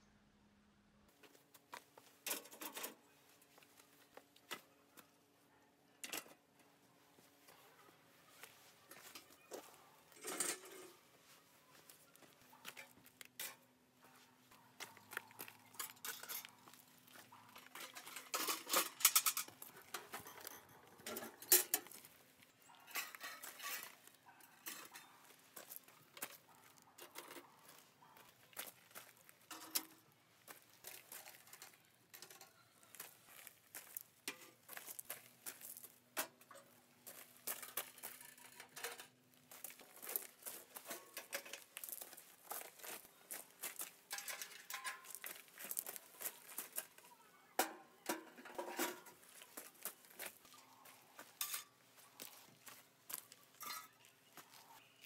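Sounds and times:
metal clanking and clicking: 17.6s - 21.9s, 44.1s - 45.2s
footsteps crunching gravel: 21.9s - 31.9s, 32.8s - 38.5s, 39.3s - 47.3s, 49.1s - 55.0s.

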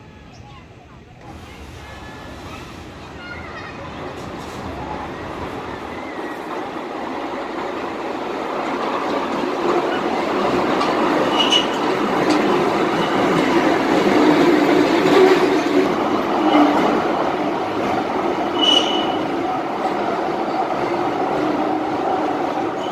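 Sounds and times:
roller coaster wheels rumbling: 0.0s - 22.9s
high wheel squeal: 11.2s - 11.9s, 12.8s - 14.4s, 18.4s - 19.4s.

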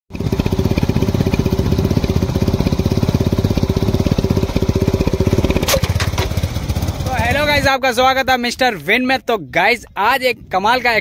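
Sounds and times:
scooter engine idling: 0.1s - 7.8s.

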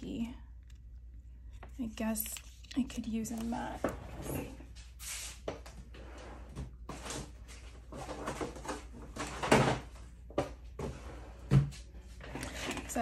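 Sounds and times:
rummaging through craft supplies: 6.8s - 13.0s.

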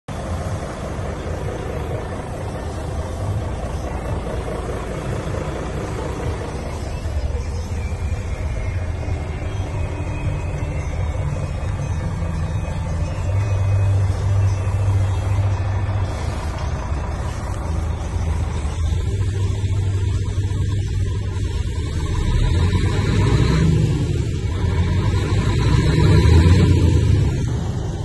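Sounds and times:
diesel truck engine idling: 0.0s - 28.0s.

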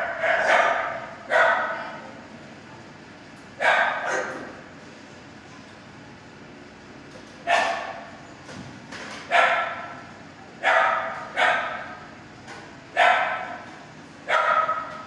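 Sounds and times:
dog barking echoing: 0.0s - 1.9s, 3.6s - 4.4s, 7.5s - 8.0s, 9.3s - 9.9s, 10.6s - 11.9s, 13.0s - 13.6s, 14.3s - 15.0s.

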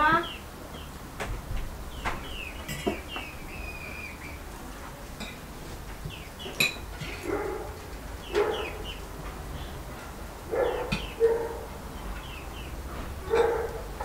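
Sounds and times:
small birds chirping: 0.0s - 14.0s
dog barking: 7.2s - 8.9s, 10.5s - 11.8s, 13.2s - 14.0s.

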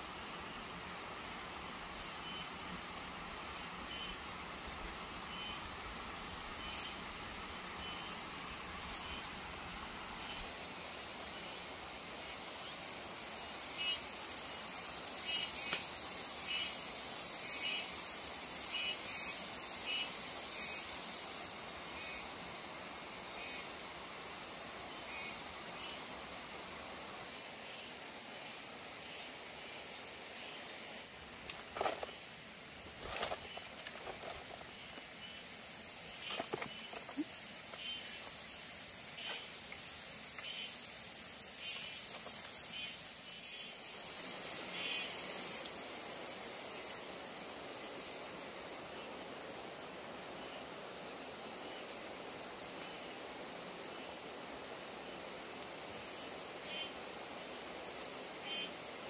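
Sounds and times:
pulsing insect chorus: 0.0s - 59.0s
rustling: 31.4s - 32.2s, 32.8s - 35.1s.

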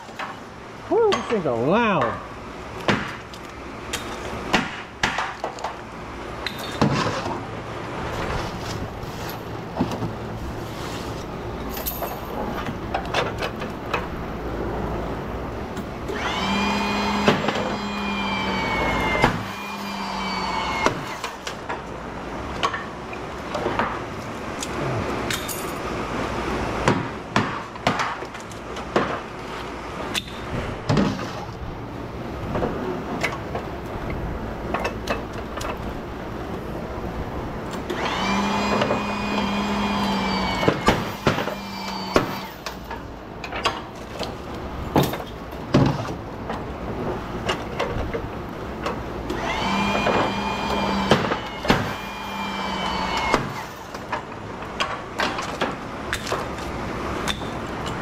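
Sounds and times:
sharp cracks and bangs of metal: 0.0s - 7.5s, 18.9s - 26.0s, 26.8s - 31.7s, 37.6s - 58.0s
power tool whine: 16.0s - 21.5s, 37.8s - 42.9s, 49.2s - 54.1s.

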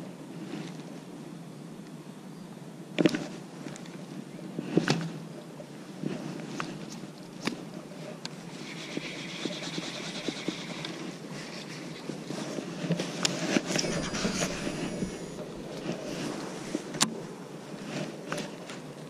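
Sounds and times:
fishing reel whirring: 8.6s - 10.9s, 13.7s - 16.2s
low rumble: 13.8s - 16.9s.

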